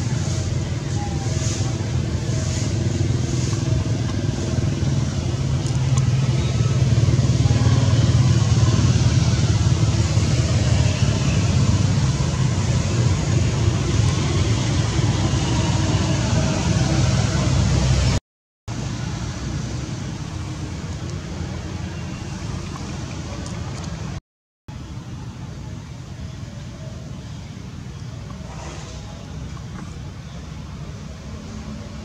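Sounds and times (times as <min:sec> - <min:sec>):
motor engine rumbling: 0:00.0 - 0:32.0.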